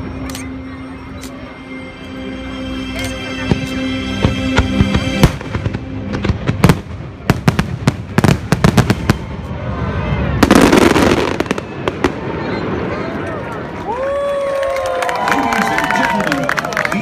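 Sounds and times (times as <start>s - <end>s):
orchestral music: 0.0s - 9.8s
fireworks crackle: 3.4s - 9.5s, 10.4s - 14.0s
fireworks bangs: 3.5s - 13.2s.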